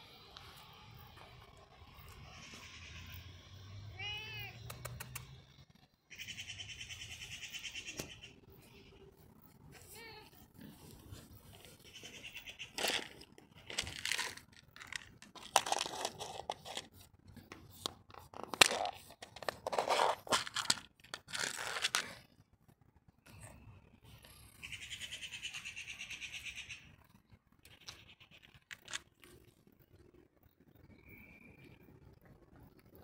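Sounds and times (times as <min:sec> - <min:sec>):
food packaging rustling and tearing: 0:12.8 - 0:17.0, 0:17.7 - 0:22.2.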